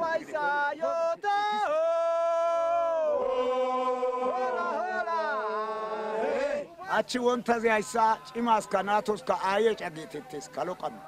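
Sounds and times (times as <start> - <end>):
man singing long notes: 0.0 - 6.7.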